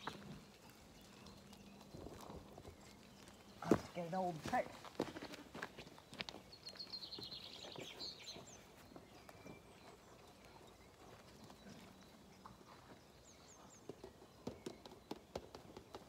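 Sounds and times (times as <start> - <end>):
footfalls on grass and gravel: 3.3 - 7.3
bird chirps: 6.0 - 16.0.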